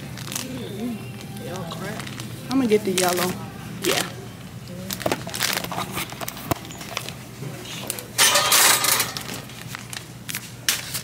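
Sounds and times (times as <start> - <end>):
shopping cart rattling: 8.2 - 9.6.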